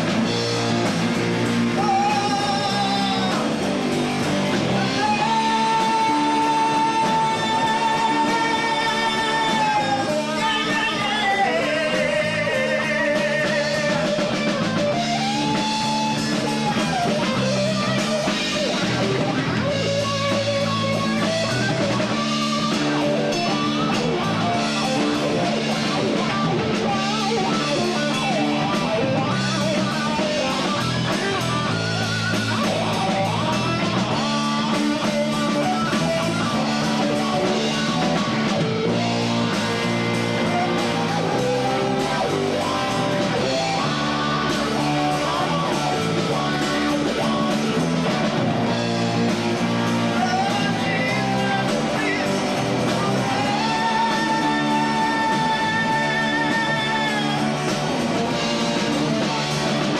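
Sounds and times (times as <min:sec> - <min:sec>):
bass guitar: 0:00.0 - 0:59.9
drum kit: 0:00.0 - 0:59.9
electric guitar lead line: 0:00.0 - 0:59.9.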